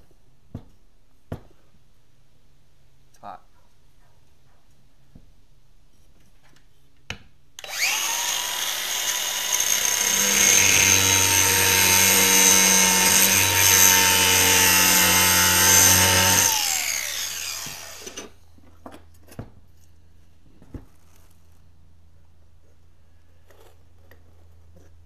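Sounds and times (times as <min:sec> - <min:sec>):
angle grinder whine: 0:07.6 - 0:18.4
grinder grinding metal: 0:07.6 - 0:18.4.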